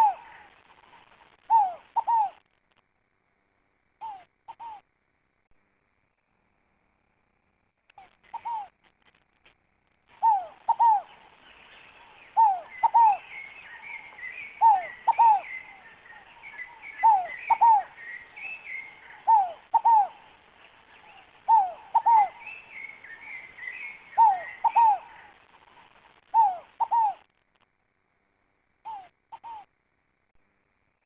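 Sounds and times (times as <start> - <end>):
dove cooing: 0.0 - 2.4, 4.0 - 4.8, 8.0 - 8.8, 10.1 - 27.3, 28.8 - 29.7
small birds chirping: 0.0 - 2.5, 7.9 - 9.3, 10.0 - 27.4, 28.8 - 29.8.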